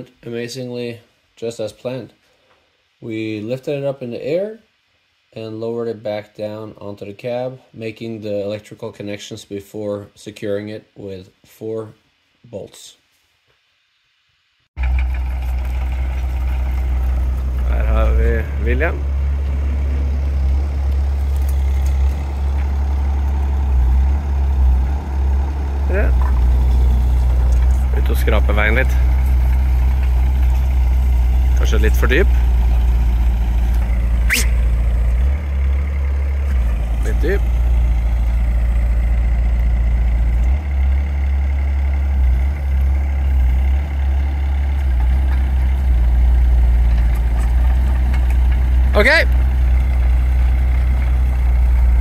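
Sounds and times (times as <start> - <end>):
mini excavator engine droning: 14.8 - 52.0.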